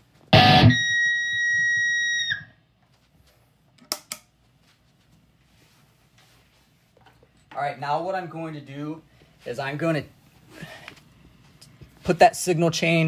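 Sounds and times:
high-pitched amp speaker whine: 0:00.3 - 0:02.7.

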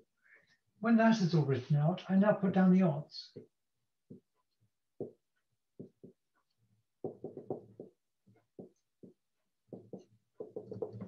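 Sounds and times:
taps and strokes on a board: 0:03.4 - 0:11.0.

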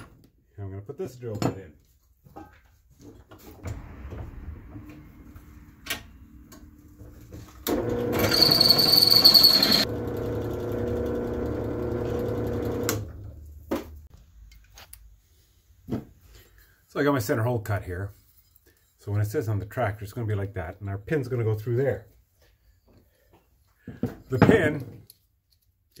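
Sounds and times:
drill press running: 0:03.6 - 0:13.5
drill bit squealing in steel: 0:08.2 - 0:09.9.

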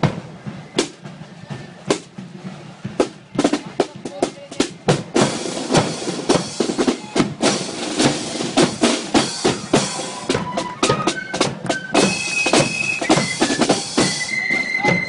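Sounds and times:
snare drums playing march beat: 0:00.0 - 0:15.0
flutes playing held notes: 0:09.1 - 0:15.0.

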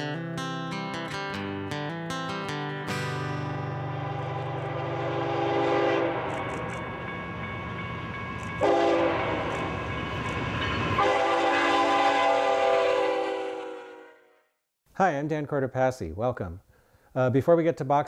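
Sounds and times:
diesel locomotive engine rumble: 0:03.7 - 0:13.8
train air horn blasts: 0:03.8 - 0:06.9, 0:08.6 - 0:09.9, 0:11.0 - 0:14.5.

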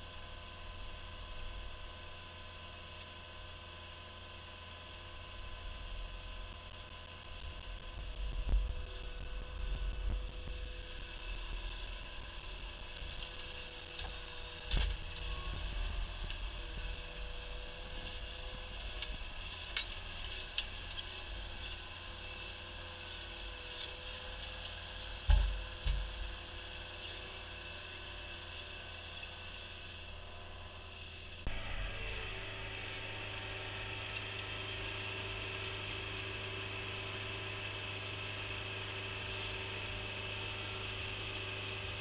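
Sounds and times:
track loader engine running: 0:00.0 - 0:42.0
metal knocks and clanks: 0:25.3 - 0:26.4.

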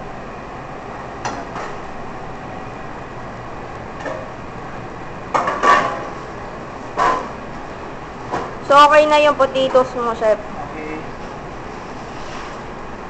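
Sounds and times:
steady background noise: 0:00.0 - 0:13.0
pots and pans clattering: 0:05.4 - 0:06.2.

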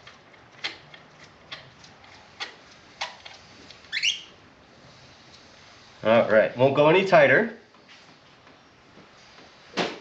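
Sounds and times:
rubbery squeak: 0:03.9 - 0:04.4.

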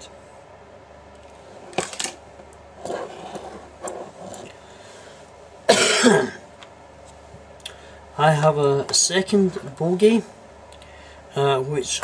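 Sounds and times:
man coughing and clearing throat: 0:05.7 - 0:06.5.

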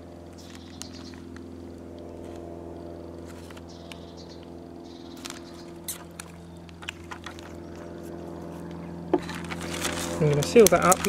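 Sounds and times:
steady low hum: 0:00.0 - 0:11.0
plastic bag crinkling: 0:09.2 - 0:11.0.

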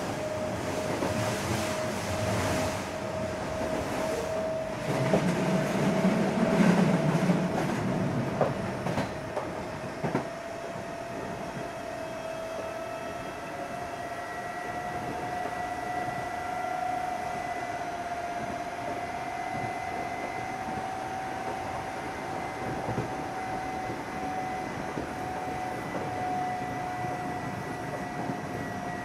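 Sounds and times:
rail joint clacks: 0:03.5 - 0:10.3.

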